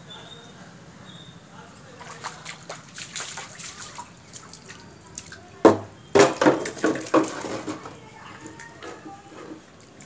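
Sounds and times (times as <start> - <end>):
pot and jar clattering on stone floor: 5.7 - 8.0.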